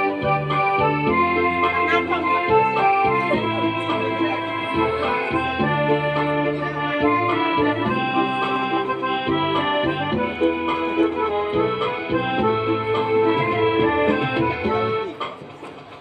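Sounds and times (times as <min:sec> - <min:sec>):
accordion melody: 0:00.0 - 0:15.3.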